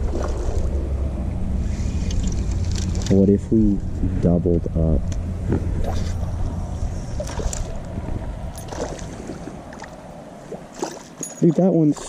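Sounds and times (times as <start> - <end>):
wind and handling rumble: 0.0 - 12.0
faint clicks and rustles: 1.8 - 3.2.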